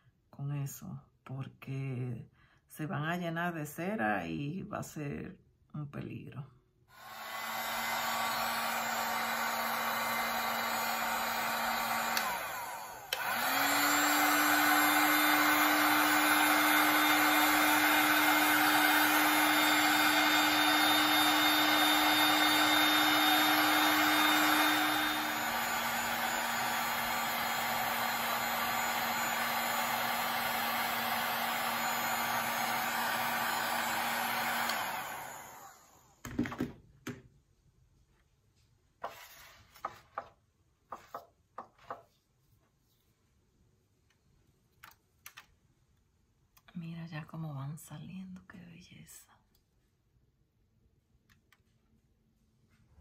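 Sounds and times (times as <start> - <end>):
heat gun blowing air: 6.9 - 36.2.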